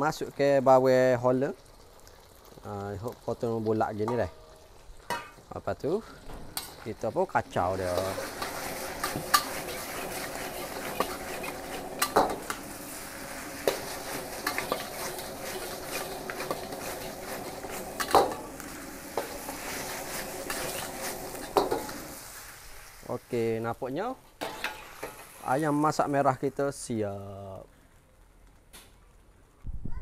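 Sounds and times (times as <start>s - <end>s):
frying sizzle: 0.0s - 29.4s
metal spatula scraping wok: 6.1s - 23.1s, 24.4s - 26.1s.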